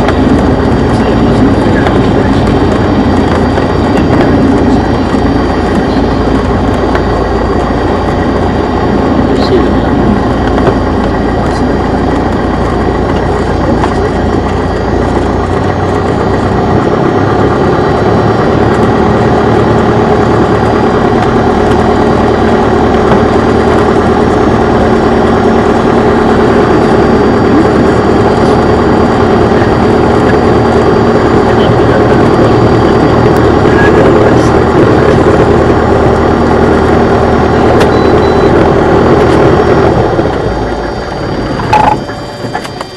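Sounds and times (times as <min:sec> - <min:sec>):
propeller plane engine drone: 0:00.0 - 0:42.9.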